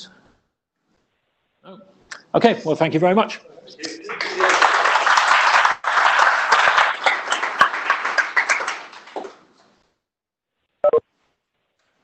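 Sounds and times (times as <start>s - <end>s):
audience applauding: 3.8s - 9.5s.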